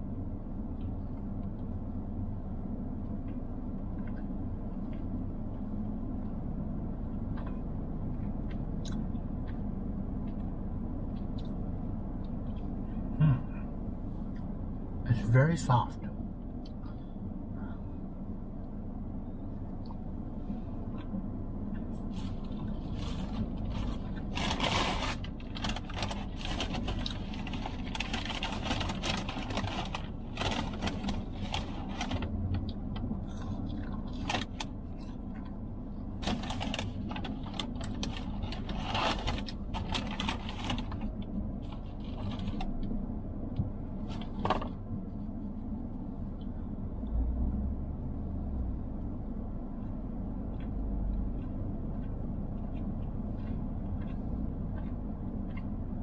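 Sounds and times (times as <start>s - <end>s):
low rumble of parked car: 0.0s - 56.0s
man chewing and smacking: 0.6s - 1.8s, 3.0s - 6.4s, 7.0s - 13.1s, 19.7s - 20.2s, 32.3s - 36.1s, 49.6s - 56.0s.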